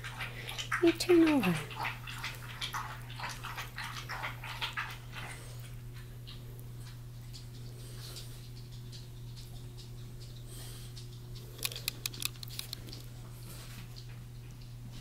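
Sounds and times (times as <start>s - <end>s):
sharp clicks: 11.6s - 13.0s.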